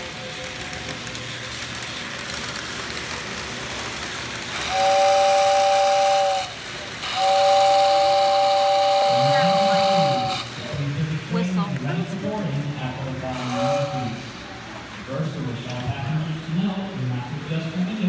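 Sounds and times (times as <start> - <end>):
model train running on track: 0.0 - 18.0
train whistle blowing: 4.6 - 10.5, 13.4 - 14.3.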